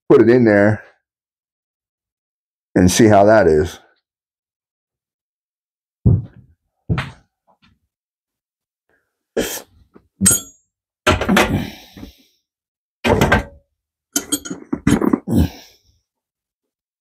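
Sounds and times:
metal parts knocking and clattering: 10.2s - 11.6s, 13.1s - 13.6s, 14.2s - 15.2s.

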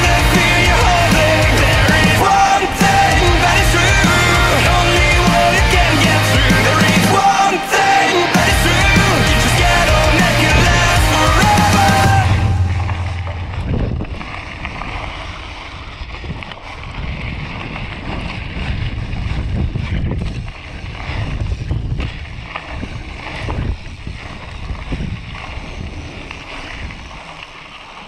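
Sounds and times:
bicycle tyres on gravel: 0.0s - 12.5s, 13.4s - 28.0s
wind buffeting microphone: 9.2s - 27.6s.

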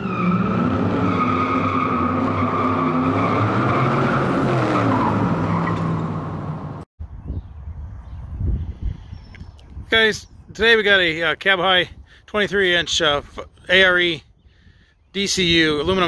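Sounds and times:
car tires squealing: 0.0s - 6.3s
car engine revving: 0.0s - 6.8s.

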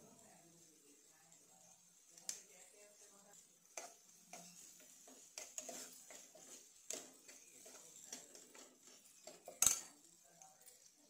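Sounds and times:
spoon scraping and clinking pan: 3.6s - 10.9s.

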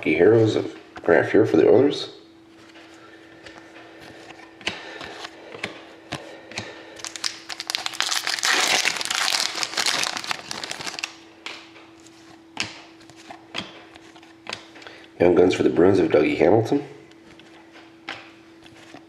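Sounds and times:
foil wrapper crinkling: 7.0s - 11.2s.

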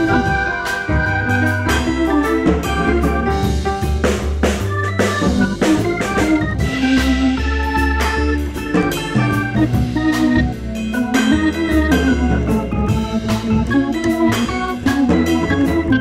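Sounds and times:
held keyboard chords: 0.0s - 16.0s
steady drum beat: 0.0s - 16.0s.

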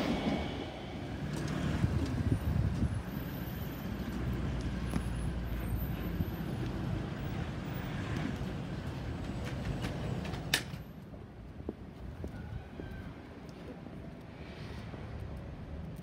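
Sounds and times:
diesel locomotives rumbling: 0.0s - 10.8s.

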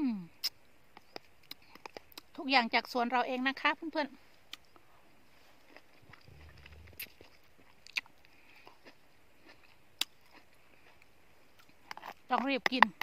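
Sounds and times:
faint chewing: 0.4s - 2.4s, 4.3s - 13.0s
brief low rumble: 6.2s - 7.2s.

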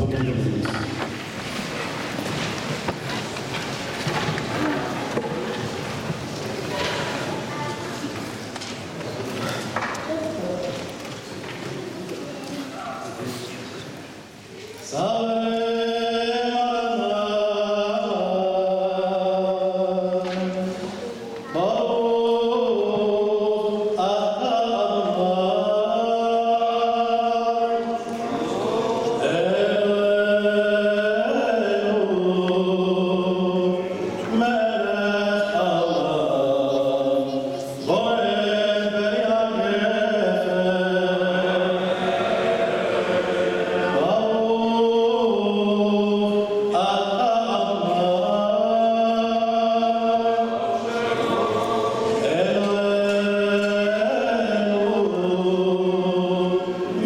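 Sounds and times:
person chanting melismatic melody: 14.9s - 57.0s.

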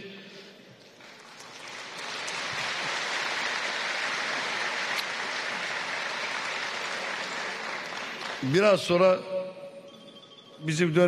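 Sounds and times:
audience applauding: 1.0s - 9.0s.

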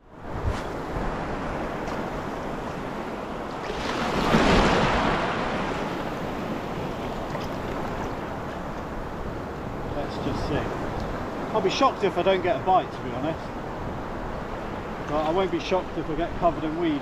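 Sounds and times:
surf washing onto beach: 0.1s - 17.0s
wave breaking: 0.3s - 11.8s.

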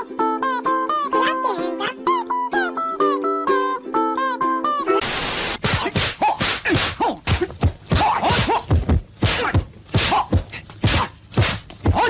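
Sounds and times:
thumps and whacks: 5.6s - 12.0s.

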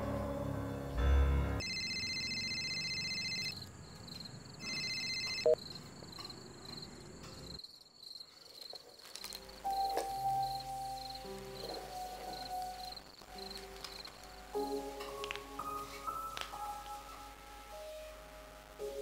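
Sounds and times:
mobile phone ringing: 1.6s - 3.6s, 4.6s - 5.6s.

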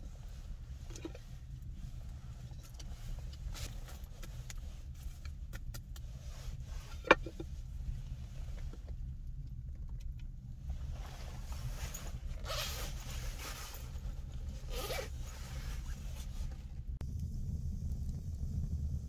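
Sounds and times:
steady low rumble: 0.0s - 19.0s
zipper being pulled: 11.0s - 16.5s.

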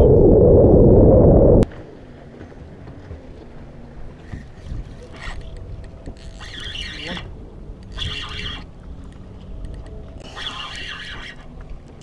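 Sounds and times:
wind buffeting microphone: 0.0s - 1.8s.

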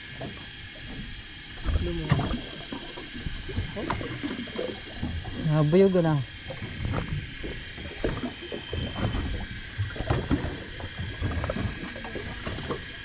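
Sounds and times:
water lapping against inflatable boat: 0.0s - 13.0s.

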